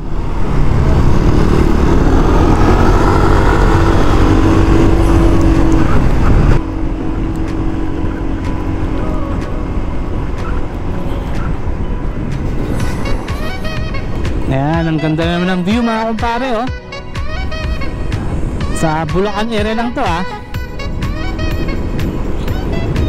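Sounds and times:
motorcycle engine droning: 0.0 - 15.1.

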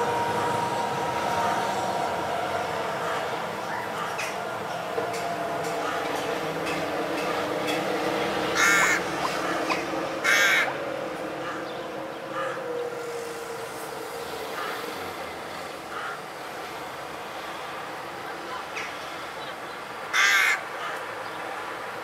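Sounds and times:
crow cawing: 5.7 - 6.2, 8.5 - 10.8, 11.4 - 11.7, 12.3 - 12.6, 15.9 - 16.2, 20.1 - 21.0.

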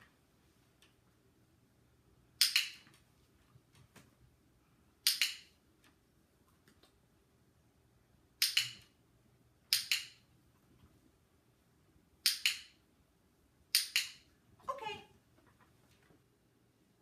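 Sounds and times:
dog-training clicker clicks: 2.4 - 2.8, 5.0 - 5.5, 8.4 - 8.9, 9.7 - 10.2, 12.2 - 12.7, 13.7 - 14.2.

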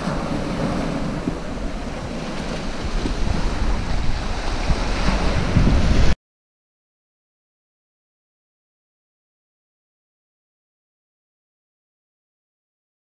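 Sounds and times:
wind buffeting microphone: 0.0 - 6.2.

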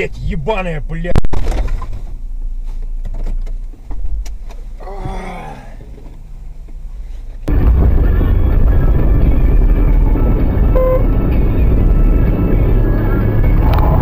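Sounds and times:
car road and engine rumble: 0.0 - 14.0
short voice-like cry: 4.8 - 5.8.

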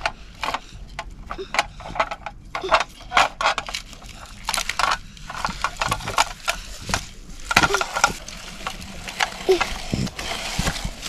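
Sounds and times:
toy wheels crunching over mulch: 2.6 - 11.0.

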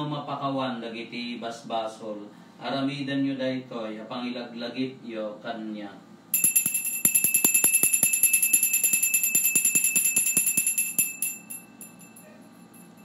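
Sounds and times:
altar bell ringing: 6.4 - 13.0.

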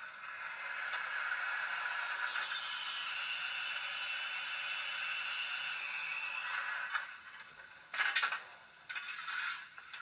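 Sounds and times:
steam hiss from small speaker: 0.3 - 6.9.

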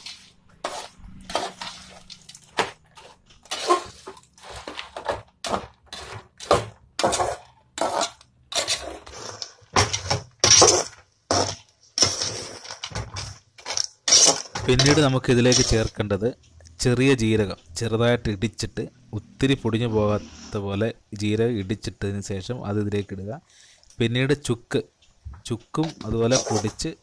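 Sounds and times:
metal ladle scraping metal pot: 0.0 - 4.8, 19.9 - 20.6, 26.0 - 26.8.

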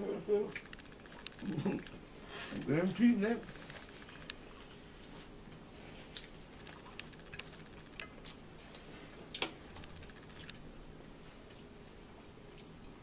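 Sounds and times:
chewing: 6.0 - 9.5.

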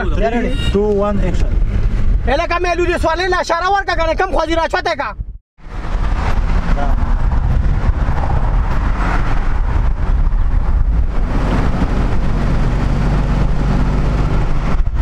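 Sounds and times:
vehicle engine and road rumble: 0.0 - 15.0
wind rushing past: 5.6 - 15.0.

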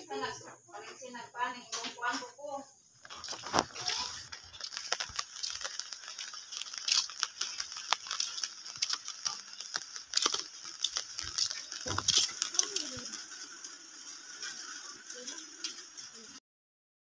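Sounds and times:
flip-flop footsteps on concrete: 3.0 - 12.9
rustle: 3.0 - 16.4.

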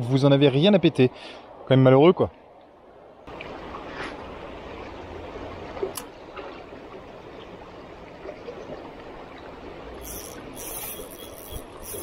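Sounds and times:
river current over shallows: 2.4 - 12.0
fishing reel whirring: 9.9 - 12.0.

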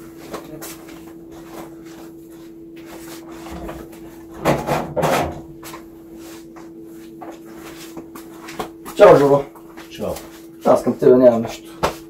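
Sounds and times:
steady low hum: 0.0 - 12.0
objects knocking and rubbing: 3.4 - 5.5.

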